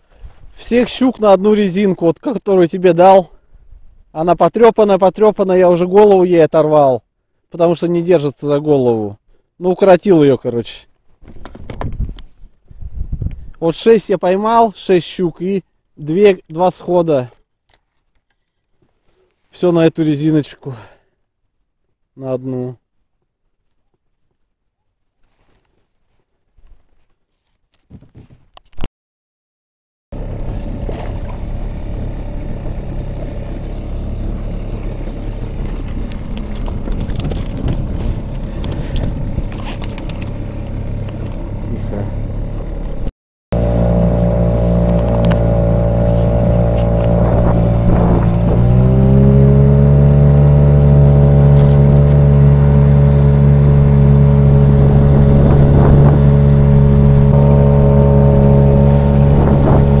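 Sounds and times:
rustles and clicks: 0:10.9 - 0:13.6, 0:23.1 - 0:28.9, 0:34.7 - 0:41.6
outboard motor drone: 0:30.2 - 1:00.0.

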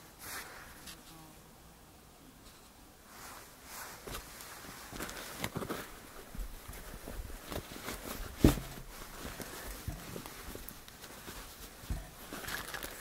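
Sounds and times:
fabric rustling: 0:03.1 - 0:13.0.

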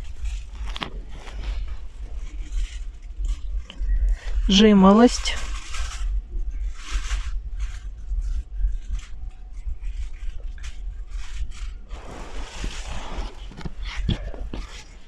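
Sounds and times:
light rustles and scrapes: 0:00.0 - 0:15.0
steady low rumble: 0:00.0 - 0:15.0.

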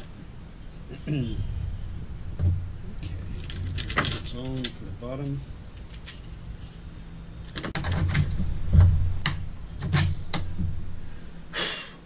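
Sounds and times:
low rumble: 0:00.0 - 0:05.8, 0:08.1 - 0:11.5
hardware clicks and knocks: 0:07.5 - 0:10.7.

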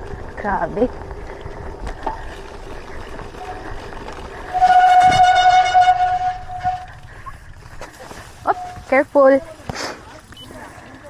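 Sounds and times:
vehicle horn blast: 0:04.5 - 0:07.0.

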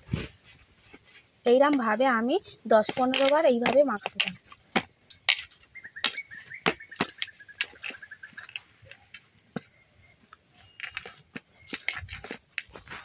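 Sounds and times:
bangles clicking: 0:02.9 - 0:09.4, 0:10.6 - 0:13.0.

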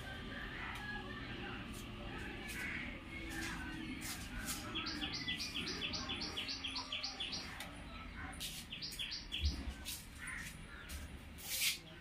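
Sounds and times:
small bird chirping: 0:04.4 - 0:07.7, 0:08.4 - 0:11.0.

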